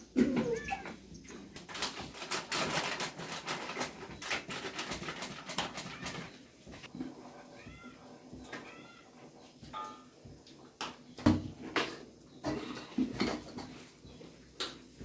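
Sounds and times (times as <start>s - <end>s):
plastic packet crinkling: 1.6s - 6.4s.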